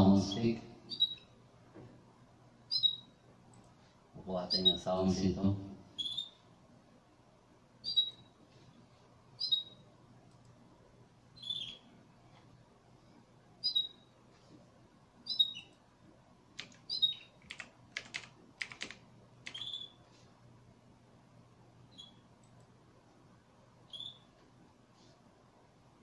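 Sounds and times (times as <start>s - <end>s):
small bird chirping: 0.9s - 1.4s, 2.7s - 3.2s, 4.5s - 4.8s, 6.0s - 6.5s, 7.8s - 8.4s, 9.3s - 9.9s, 11.3s - 12.0s, 13.6s - 14.1s, 15.2s - 15.8s, 16.6s - 17.6s, 19.5s - 20.2s, 21.9s - 22.3s, 23.8s - 24.4s
computer mouse clicks: 3.5s - 3.8s, 10.2s - 10.6s, 16.6s - 19.9s, 22.0s - 22.7s.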